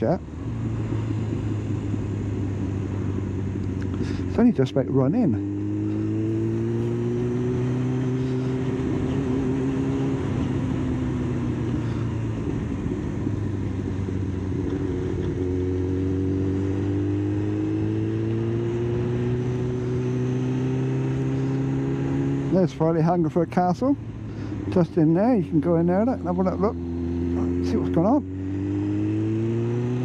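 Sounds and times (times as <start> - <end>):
motorcycle engine running: 0.0 - 30.0
wind rushing over microphone: 5.2 - 22.5.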